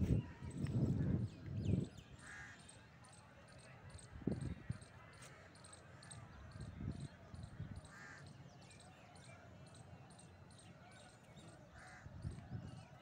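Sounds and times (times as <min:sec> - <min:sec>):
crow cawing: 0:07.9 - 0:08.2, 0:11.8 - 0:12.1.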